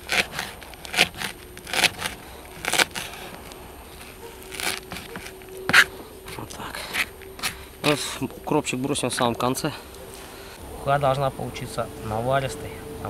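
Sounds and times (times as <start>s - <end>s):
knife chopping herbs on cardboard: 0.0s - 8.1s.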